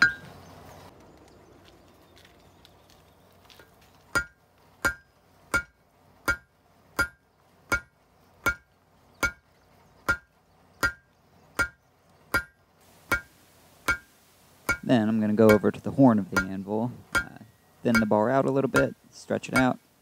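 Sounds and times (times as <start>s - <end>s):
hammer striking metal on anvil: 0.0s - 0.3s, 4.1s - 9.4s, 10.1s - 13.3s, 13.9s - 14.1s, 14.7s - 19.8s.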